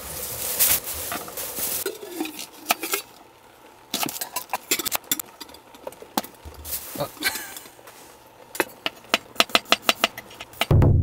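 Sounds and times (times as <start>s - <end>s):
rustle: 0.0s - 3.1s, 6.4s - 8.2s.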